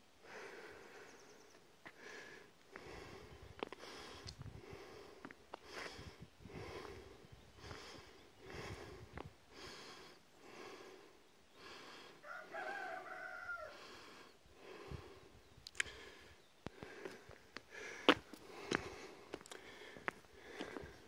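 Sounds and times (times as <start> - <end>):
rooster crowing: 12.2 - 13.9.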